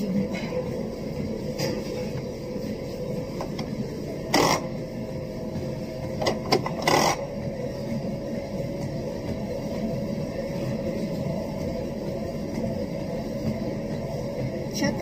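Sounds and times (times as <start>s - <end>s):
faint constant whine: 0.0s - 15.0s
steady mechanical hum: 0.0s - 15.0s.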